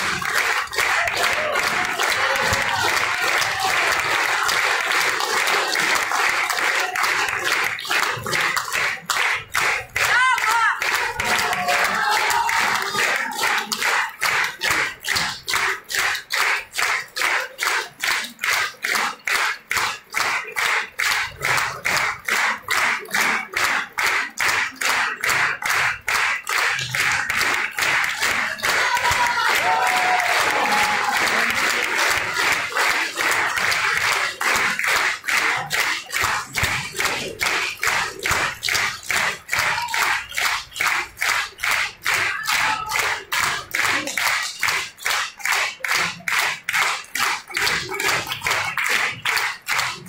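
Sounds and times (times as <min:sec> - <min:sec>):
audience clapping in rhythm: 0:00.0 - 0:50.0
crowd calling out: 0:10.0 - 0:13.7, 0:28.7 - 0:31.6.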